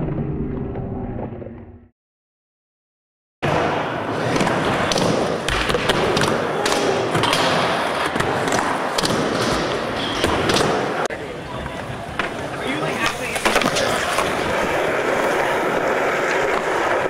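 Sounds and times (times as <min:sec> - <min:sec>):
skateboard wheels rolling on wood: 0:10.9 - 0:17.0.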